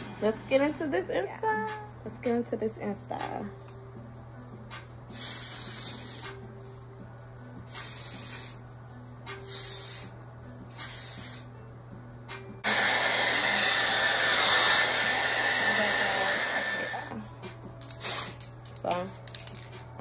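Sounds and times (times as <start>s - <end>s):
aerosol spray can hisses: 5.1s - 6.4s, 7.7s - 8.6s, 9.4s - 11.5s, 17.8s - 18.5s
hair dryer running: 12.6s - 17.2s.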